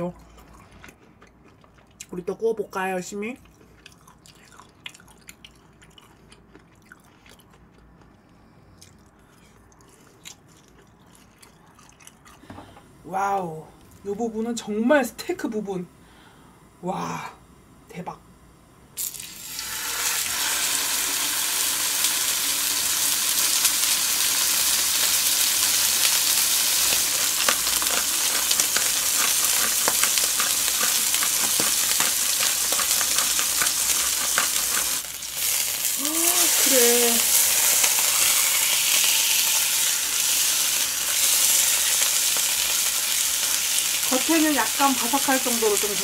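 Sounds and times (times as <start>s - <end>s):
steak sizzling in a frying pan: 19.0s - 46.0s.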